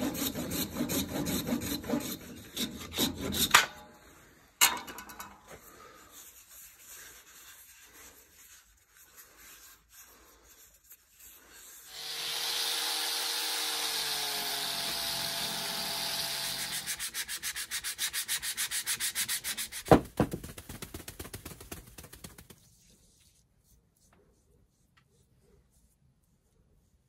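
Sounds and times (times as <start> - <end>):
sandpaper rubbing wood: 0.0 - 3.5, 6.1 - 20.0.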